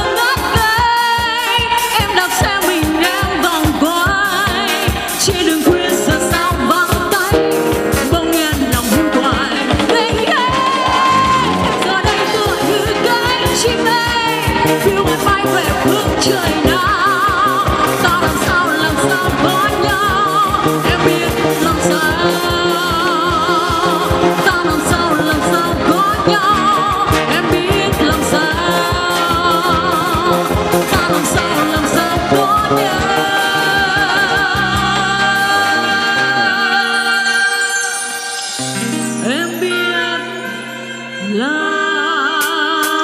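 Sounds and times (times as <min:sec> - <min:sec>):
drum kit: 0:00.0 - 0:37.5, 0:42.2 - 0:43.0
guitars: 0:00.0 - 0:41.7
keyboard: 0:00.0 - 0:43.0
woman singing a ballad: 0:00.0 - 0:43.0.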